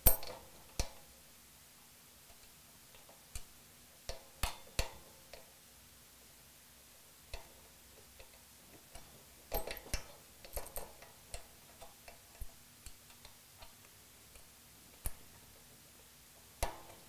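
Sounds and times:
metal parts clicking and clinking: 0:00.0 - 0:00.9, 0:09.5 - 0:12.5.

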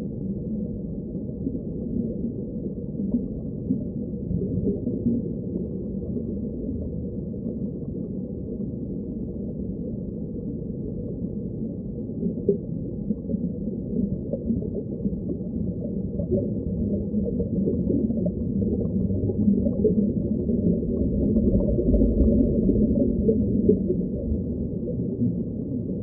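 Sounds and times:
underwater rush of water: 0:11.9 - 0:26.0.

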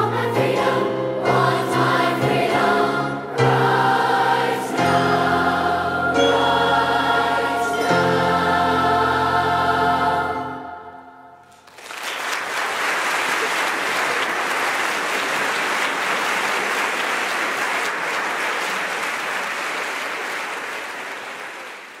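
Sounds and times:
choir holding chord: 0:00.0 - 0:11.5
audience applause: 0:11.4 - 0:22.0.

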